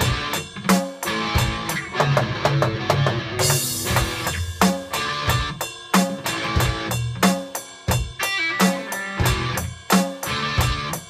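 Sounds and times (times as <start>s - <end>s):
electric guitar notes: 0.0s - 7.2s, 8.2s - 9.7s, 10.3s - 11.0s
electronic drum beat: 0.0s - 11.0s
cymbal crash: 3.4s - 10.2s.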